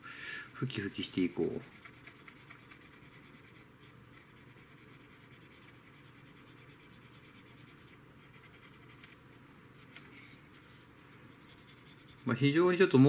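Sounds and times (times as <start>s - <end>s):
cotton swab rubbing plastic: 0.7s - 9.2s.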